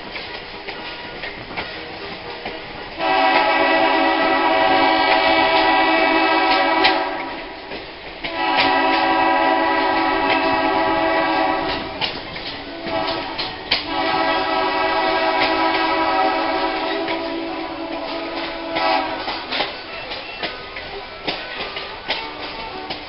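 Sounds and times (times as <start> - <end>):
train wheels clicking on rail: 0.0 - 23.0
diesel locomotive horn blasts: 2.4 - 7.6, 8.2 - 19.6.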